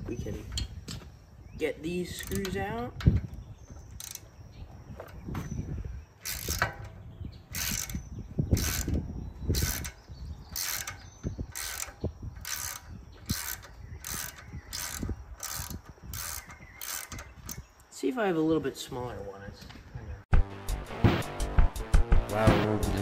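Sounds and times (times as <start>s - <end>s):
ratchet pawl clicks: 4.0s - 4.2s, 6.2s - 6.8s, 7.5s - 8.0s, 8.6s - 17.6s.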